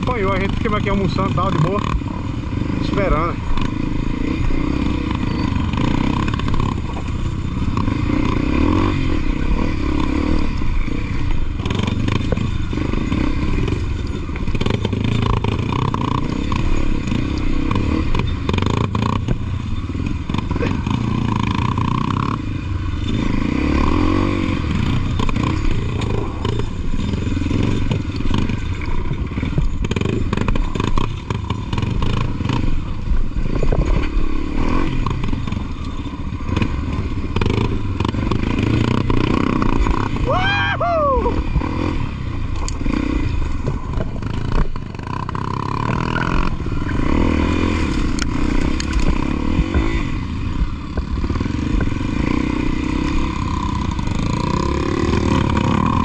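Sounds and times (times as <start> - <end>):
motorcycle engine revving: 0.0 - 56.0
bike clattering over rough ground: 24.8 - 40.4.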